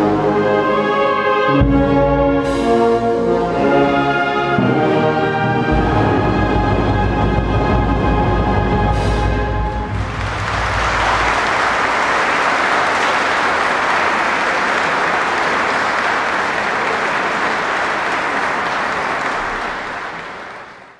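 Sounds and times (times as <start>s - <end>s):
wind band low notes: 0.0s - 12.4s
audience applauding: 9.9s - 20.9s.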